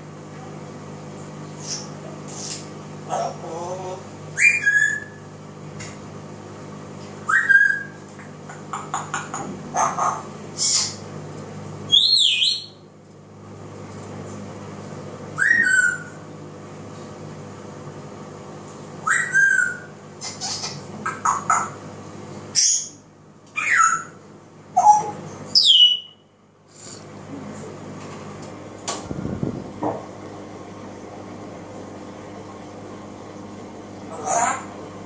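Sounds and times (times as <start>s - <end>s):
parrot whistling: 4.4s - 5.2s, 7.3s - 8.0s, 11.9s - 12.8s, 15.4s - 16.2s, 19.0s - 21.7s, 23.6s - 24.2s, 24.8s - 26.2s.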